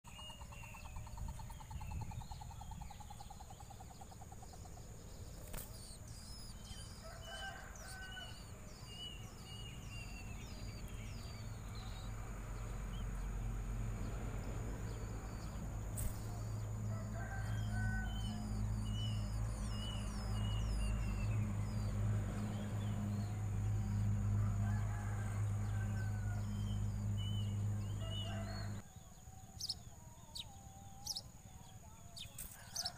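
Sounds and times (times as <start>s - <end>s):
songbirds chirping: 0.0s - 32.9s
faint rooster crowing: 6.6s - 10.7s, 15.4s - 19.6s, 23.8s - 32.9s.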